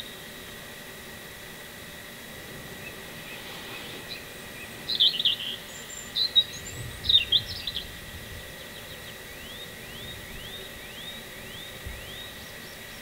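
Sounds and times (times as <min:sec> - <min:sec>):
small bird chirping: 0:02.8 - 0:13.0.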